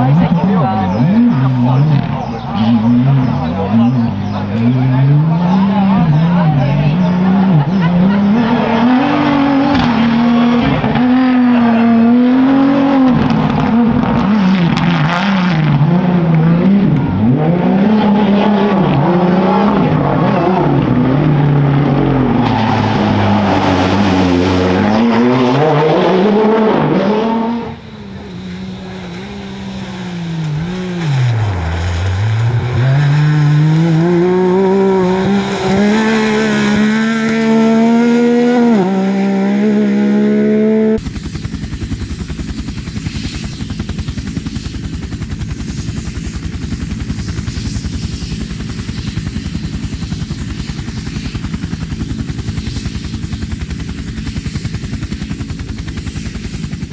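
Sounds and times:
rally car engines revving: 0.0s - 41.0s.

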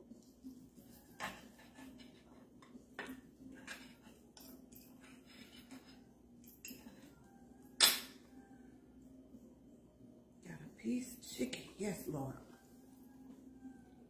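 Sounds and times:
knife and fork scraping on plate: 0.8s - 7.2s.

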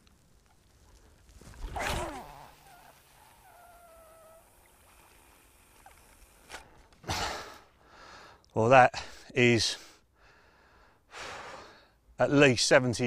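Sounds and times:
fishing line whining off reel: 1.5s - 7.0s
fishing rod cast whoosh: 1.6s - 2.9s.

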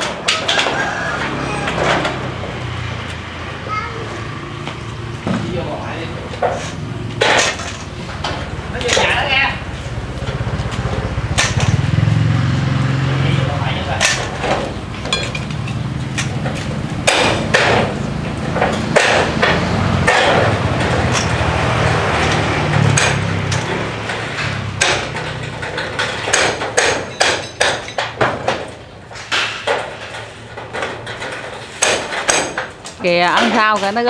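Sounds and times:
hammer blows on metal roof: 16.2s - 34.0s.

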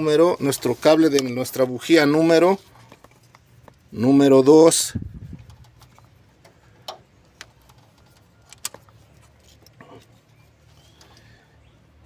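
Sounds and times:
faint clicks and taps of wire handling: 2.7s - 3.9s, 5.3s - 10.1s.

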